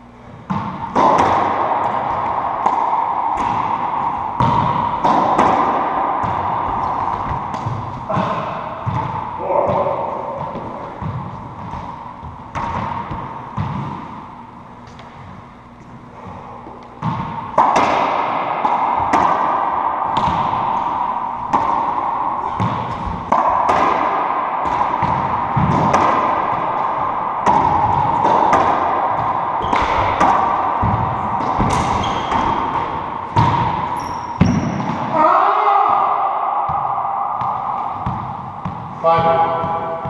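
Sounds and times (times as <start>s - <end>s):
racquetball hits ringing in court: 0.4s - 15.4s, 17.0s - 40.0s.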